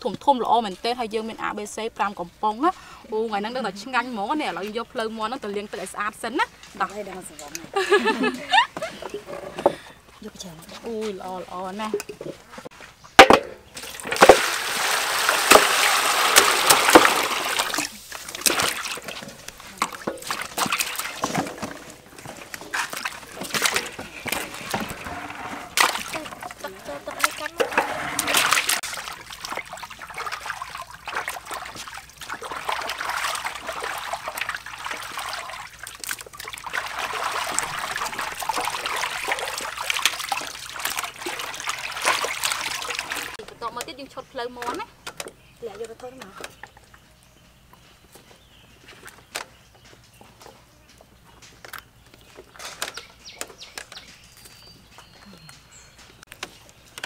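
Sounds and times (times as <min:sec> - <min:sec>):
water pouring and splashing: 0:02.7 - 0:47.0.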